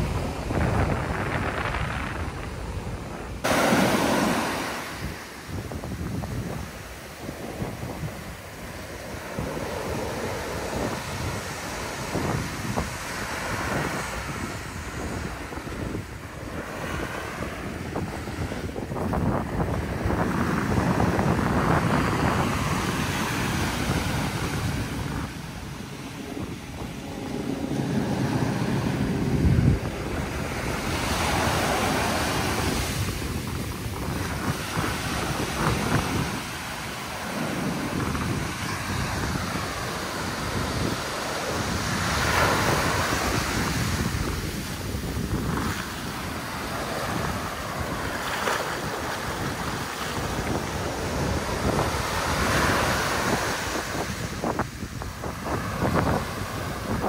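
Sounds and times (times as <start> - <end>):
waves breaking on sand: 0.0 - 57.0
wind buffeting microphone: 0.0 - 57.0.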